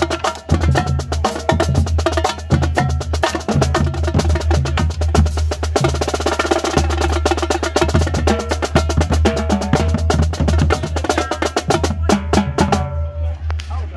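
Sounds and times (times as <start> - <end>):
marching drumline playing: 0.0 - 13.1.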